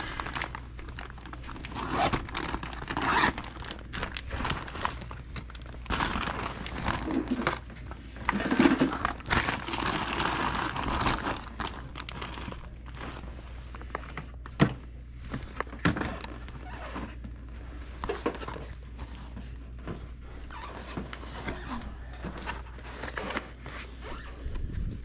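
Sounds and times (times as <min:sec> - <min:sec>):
plastic bag crinkling: 0:00.0 - 0:14.2.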